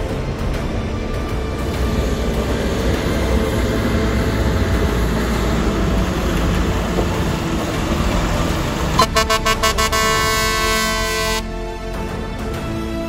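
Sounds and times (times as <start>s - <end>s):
truck engine rumbling: 0.0s - 13.0s
air horn toots: 9.0s - 11.5s.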